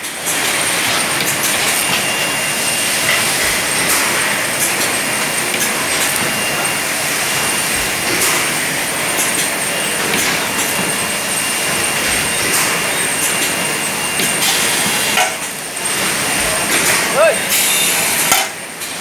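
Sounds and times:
bottling machinery whining: 0.0s - 19.0s.

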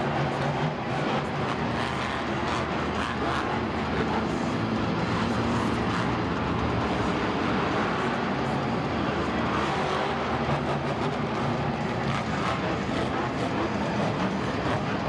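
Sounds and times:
truck engine running loud: 0.0s - 15.0s.

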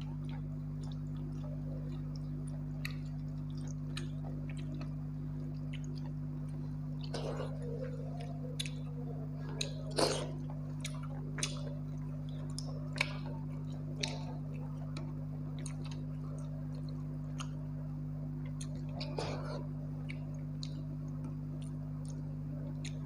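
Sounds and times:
chewing and wet smacks: 0.0s - 23.0s
steady low hum: 0.0s - 23.0s.

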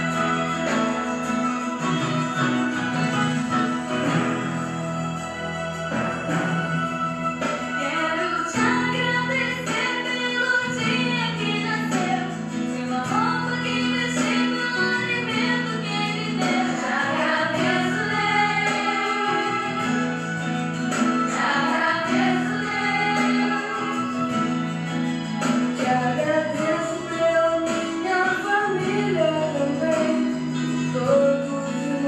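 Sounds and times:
instrumental accompaniment: 0.0s - 32.0s
woman singing: 7.4s - 20.5s, 21.2s - 32.0s.

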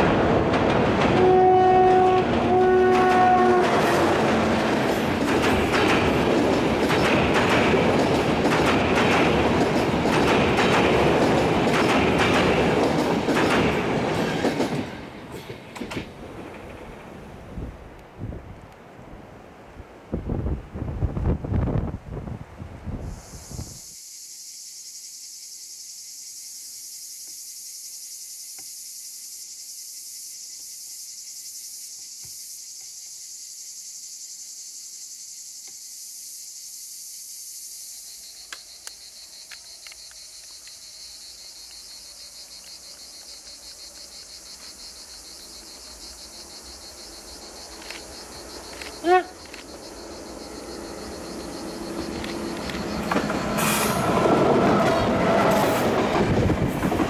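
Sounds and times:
wind gust on microphone: 16.2s - 23.9s, 51.8s - 57.0s
cicadas buzzing: 22.9s - 57.0s.

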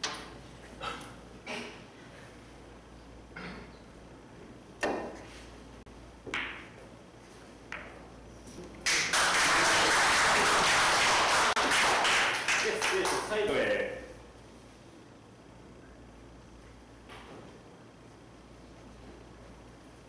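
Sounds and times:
pool balls clicking: 6.2s - 6.9s, 7.7s - 8.0s
loud applause: 8.9s - 13.4s.

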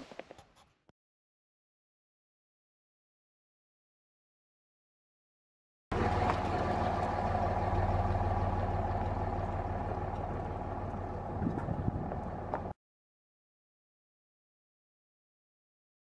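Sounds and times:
tyres crunching on gravel: 5.9s - 12.7s
truck engine humming: 5.9s - 12.8s.

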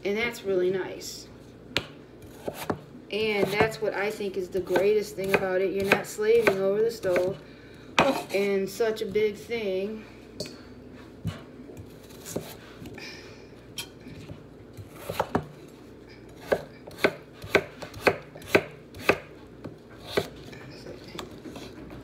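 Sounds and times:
knife chopping on wooden board: 1.8s - 2.8s, 4.6s - 7.3s, 12.0s - 12.6s, 14.8s - 15.5s, 16.4s - 19.3s.

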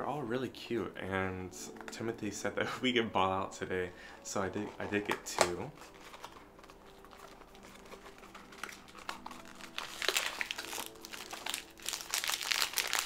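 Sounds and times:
foil bag crinkling: 5.7s - 13.0s.

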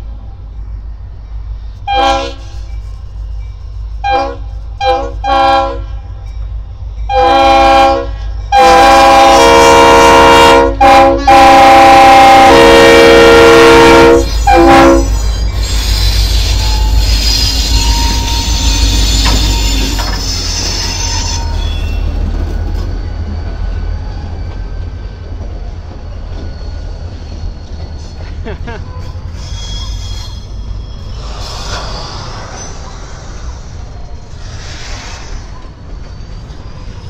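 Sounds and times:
train rolling by rumbling: 0.0s - 37.0s
locomotive air horn blasts: 1.9s - 2.6s, 4.0s - 6.0s, 7.1s - 15.3s.

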